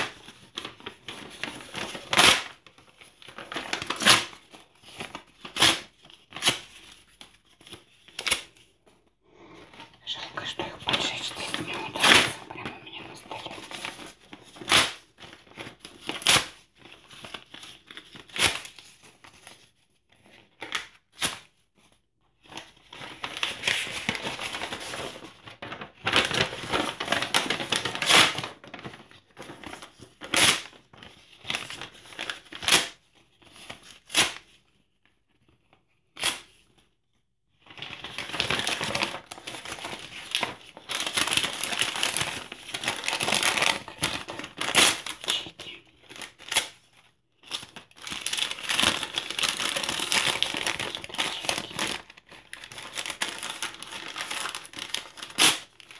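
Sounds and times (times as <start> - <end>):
paper rustling and crumpling: 0.0 - 8.7, 9.5 - 36.8, 37.6 - 55.9
paper tearing: 1.1 - 2.6, 10.6 - 16.6, 52.7 - 55.7.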